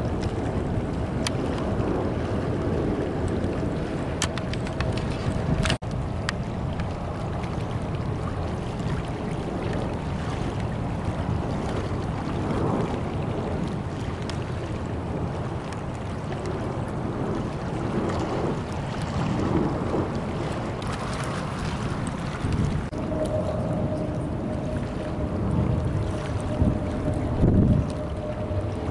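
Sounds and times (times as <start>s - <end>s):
distant jet engines rumbling: 0.0s - 28.9s
wind rushing over microphone: 0.0s - 28.9s.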